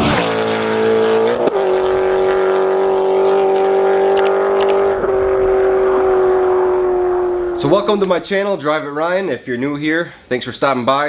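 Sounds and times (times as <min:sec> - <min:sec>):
car engine revving high: 0:00.0 - 0:07.8.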